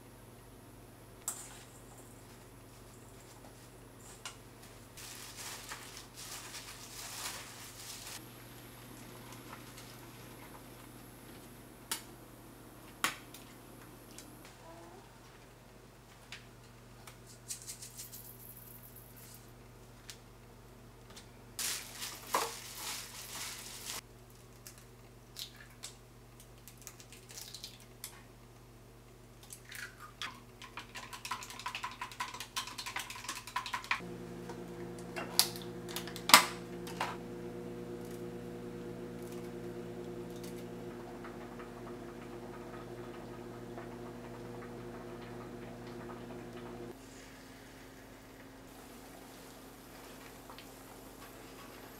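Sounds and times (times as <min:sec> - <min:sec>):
steady low hum: 0:34.0 - 0:51.9.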